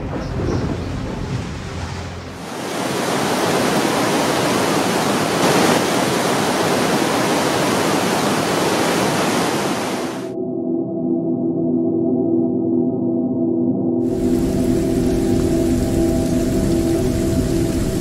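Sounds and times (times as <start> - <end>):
gale-force wind: 0.0 - 10.4, 14.0 - 18.0
driving rain: 1.0 - 10.3, 14.0 - 18.0
low thunder rumble: 14.1 - 18.0.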